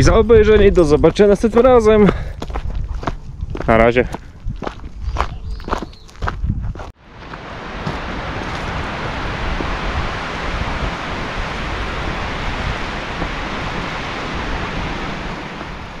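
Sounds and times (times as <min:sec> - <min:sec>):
wind rustling forest trees: 0:04.5 - 0:16.0.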